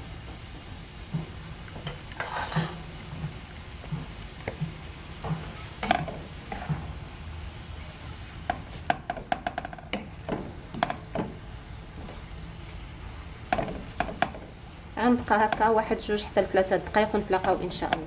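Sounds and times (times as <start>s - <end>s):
meat sizzling in a frying pan: 0.0s - 18.0s
spatula scraping a pan: 5.5s - 7.0s.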